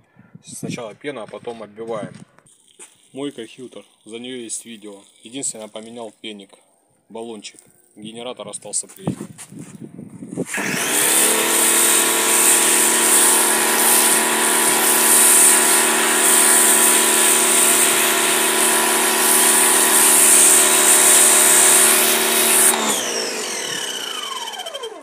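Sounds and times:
motor winding down whine: 10.4s - 25.0s
pressure washer motor humming: 10.5s - 25.0s
spray lance hissing: 11.0s - 22.9s.

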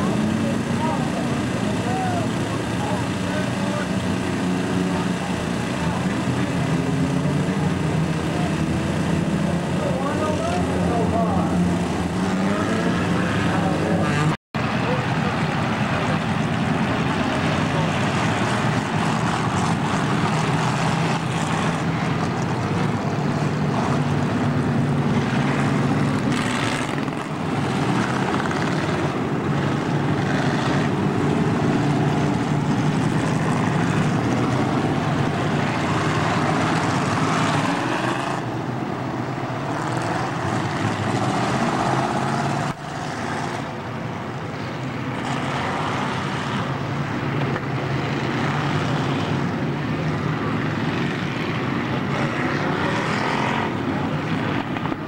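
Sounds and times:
stock car engines racing: 0.0s - 55.0s.

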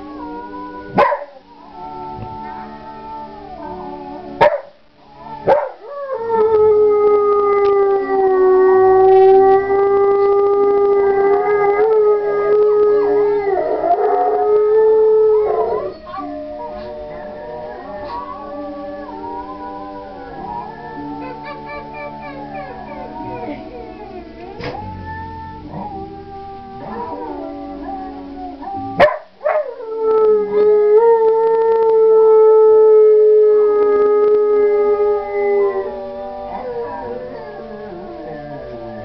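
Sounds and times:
dog howling: 5.2s - 39.0s.

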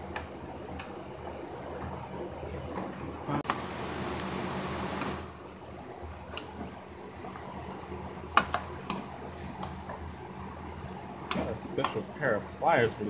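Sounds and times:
steady hiss: 3.3s - 6.0s.

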